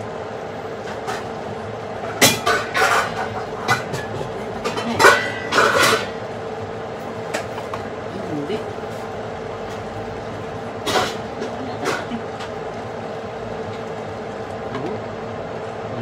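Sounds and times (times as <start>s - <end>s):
steady hum: 0.0s - 16.0s
metal utensils scraping a pan: 2.3s - 6.2s.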